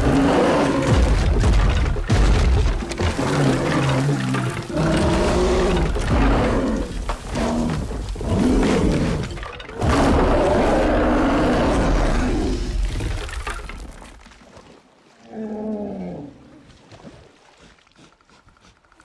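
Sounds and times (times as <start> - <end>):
loud animal-like roar: 0.0 - 1.3, 3.0 - 12.8.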